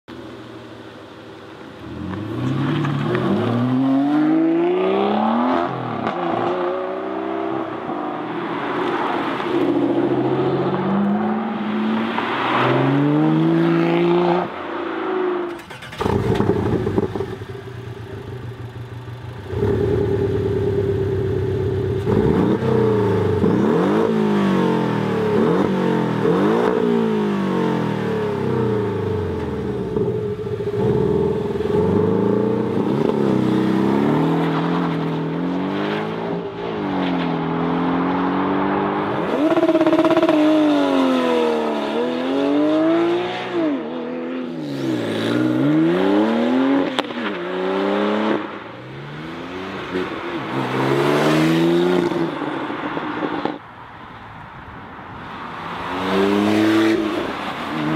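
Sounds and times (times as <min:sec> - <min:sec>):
car engine revving at standstill: 0:15.5 - 0:36.2, 0:37.7 - 0:43.8.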